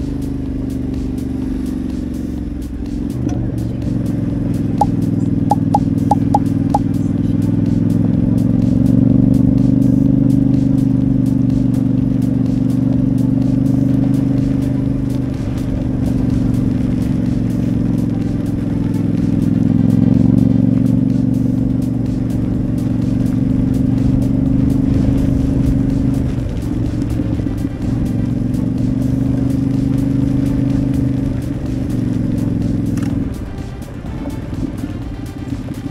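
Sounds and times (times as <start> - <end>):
motorcycle engine running: 0.0 - 35.9
short high tones: 5.5 - 6.5.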